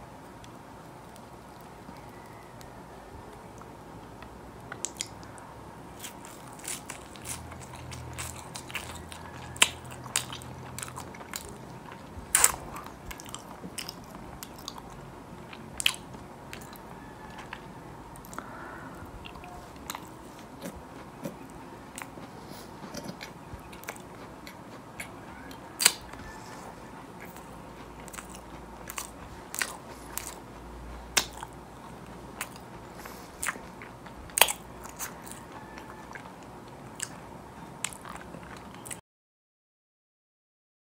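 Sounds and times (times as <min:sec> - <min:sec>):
chewing with wet mouth clicks: 0:03.5 - 0:05.4, 0:06.0 - 0:18.6, 0:19.2 - 0:39.0
biting into soft food: 0:06.0 - 0:18.5, 0:19.2 - 0:37.2.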